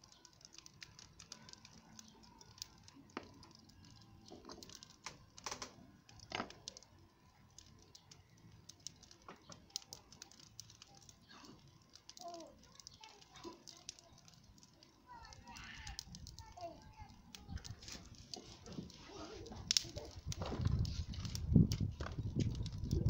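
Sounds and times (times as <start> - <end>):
light clicks and taps handling fish: 7.5 - 14.9.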